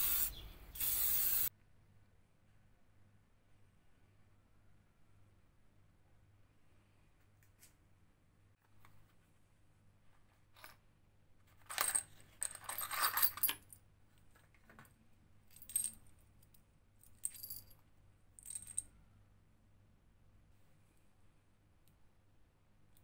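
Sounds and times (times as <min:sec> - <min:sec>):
small metal parts clinking: 0:11.6 - 0:13.8, 0:15.5 - 0:17.8, 0:18.4 - 0:18.9.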